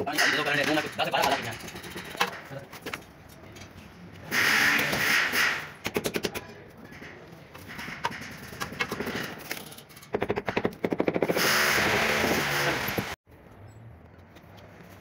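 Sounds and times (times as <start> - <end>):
harsh noisy sound: 4.3 - 5.8.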